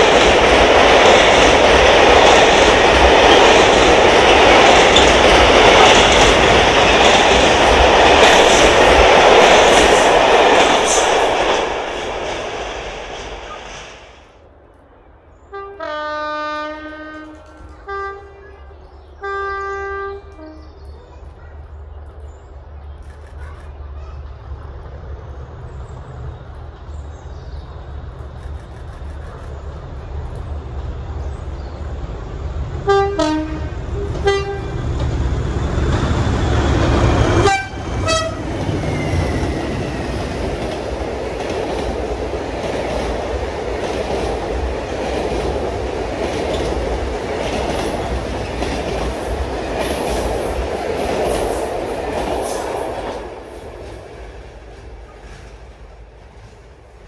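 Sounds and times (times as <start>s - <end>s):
train wheels clickety-clack on rails: 0.0s - 14.3s, 16.6s - 57.0s
diesel locomotive engine rumble: 0.0s - 57.0s
two-tone train horn blasts: 15.5s - 18.4s, 19.2s - 20.7s, 32.9s - 34.8s, 37.4s - 38.5s.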